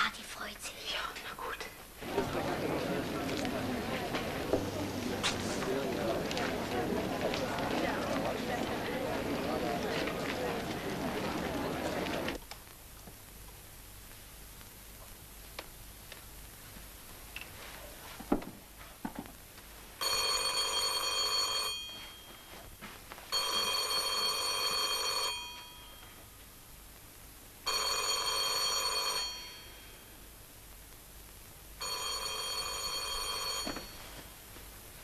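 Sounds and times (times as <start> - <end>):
telephone bell ringing: 20.0 - 22.6, 23.3 - 26.1, 27.7 - 30.1, 31.8 - 34.2.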